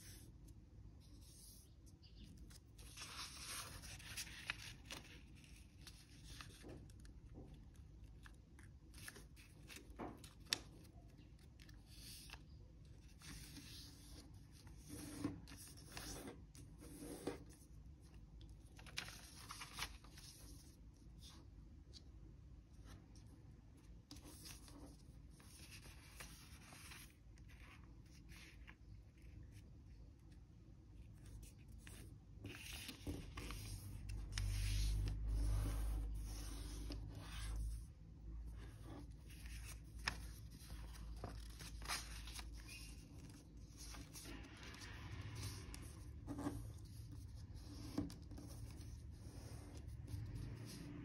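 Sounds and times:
paper rustling and crinkling: 1.3s - 17.6s, 18.6s - 22.0s, 24.1s - 29.6s, 31.0s - 37.9s, 38.6s - 50.8s.

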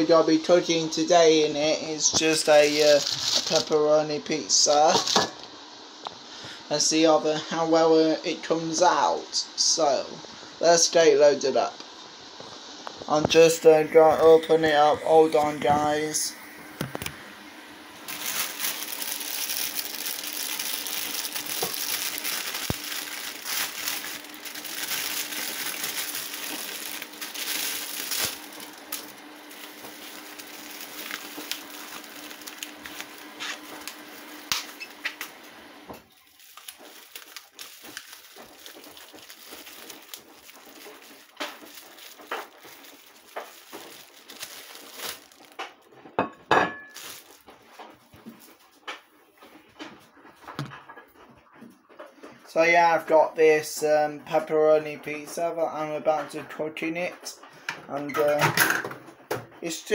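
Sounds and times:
plastic wrapping crinkling: 2.0s - 3.8s, 4.6s - 5.4s, 18.1s - 35.4s, 36.0s - 50.8s.

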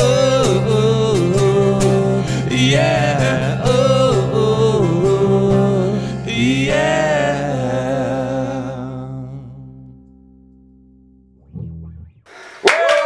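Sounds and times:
strummed acoustic guitar: 0.0s - 9.0s
men singing wordless lines: 0.0s - 9.8s
electric bass: 0.0s - 12.3s.

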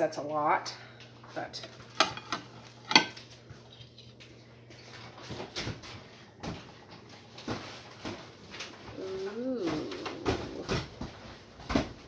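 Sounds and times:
kitchen knocks and clatter: 1.6s - 3.4s.

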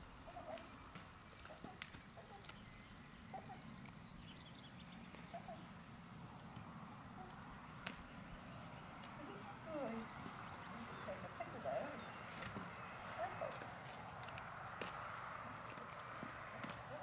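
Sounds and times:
hooves on wooden boards: 6.4s - 17.0s.

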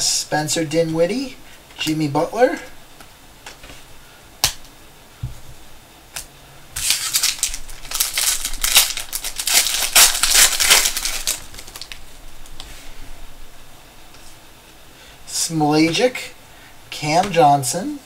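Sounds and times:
plastic wrapper crinkling: 6.8s - 12.6s.

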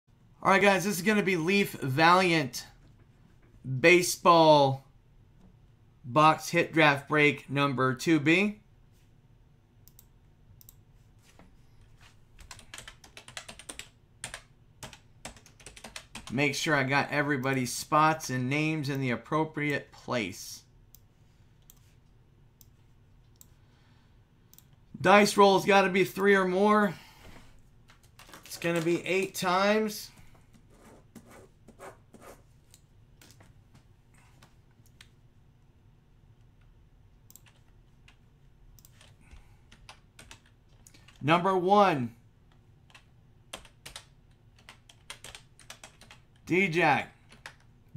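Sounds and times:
computer keyboard typing: 12.4s - 16.4s, 27.9s - 29.4s, 37.3s - 38.2s, 38.8s - 41.2s, 42.9s - 46.5s, 47.3s - 47.7s.

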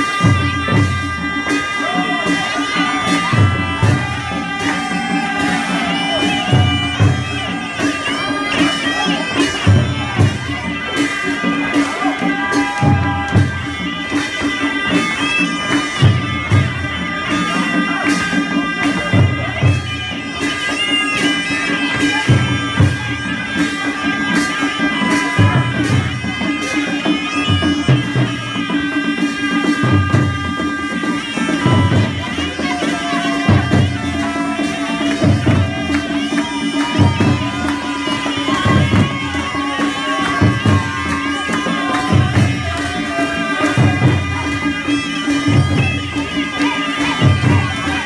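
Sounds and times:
barrel drum beating: 0.0s - 18.0s, 27.3s - 48.0s
reedy wind instruments: 0.0s - 48.0s
trumpets playing melody: 0.0s - 48.0s.

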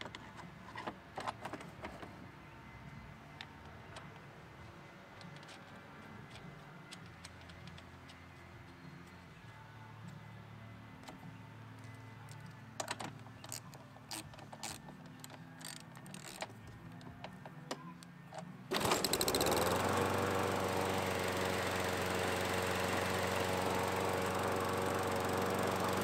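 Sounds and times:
lawn mower engine running: 18.7s - 26.0s.

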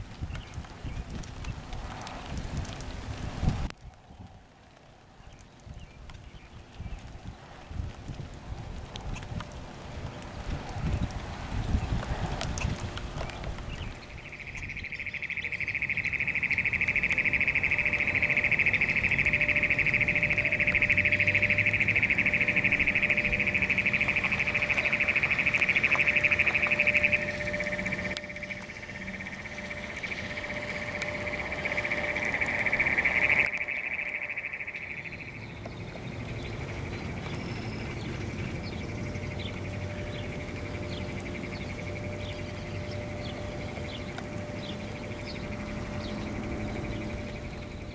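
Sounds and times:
high-pitched trilling animal chorus: 14.2s - 35.4s.

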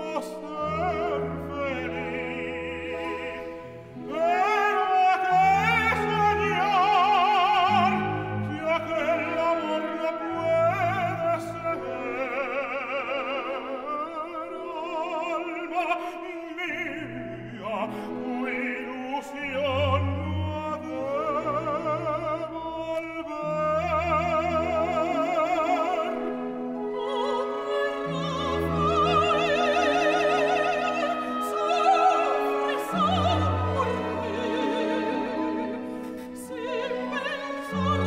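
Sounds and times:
symphony orchestra playing: 0.0s - 38.0s
operatic voices singing: 23.2s - 38.0s.

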